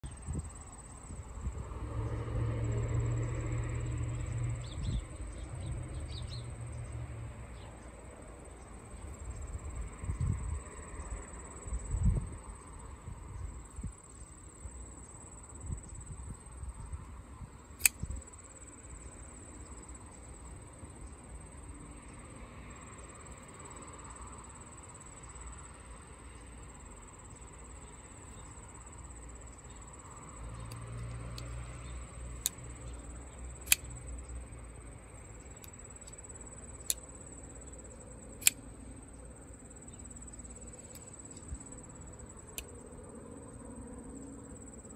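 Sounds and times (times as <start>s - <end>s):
insects chirping chorus: 0.0s - 44.9s
folding knife clicking open and shut: 17.8s - 18.1s, 33.6s - 34.0s, 36.8s - 37.1s, 38.4s - 38.6s.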